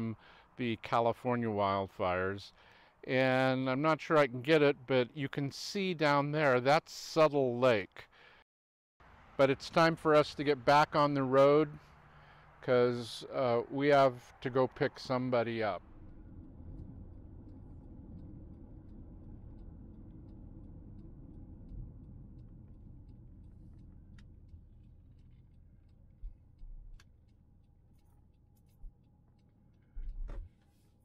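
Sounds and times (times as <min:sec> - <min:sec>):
faint ticks: 0:02.5 - 0:03.1, 0:11.7 - 0:13.4, 0:14.0 - 0:31.0
car rumbling on road: 0:09.0 - 0:30.6.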